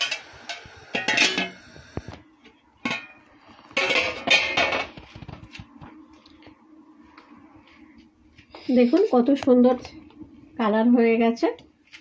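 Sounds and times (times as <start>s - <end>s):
metal cookware clattering on pot: 0.0s - 1.6s, 2.8s - 3.2s, 3.8s - 4.9s.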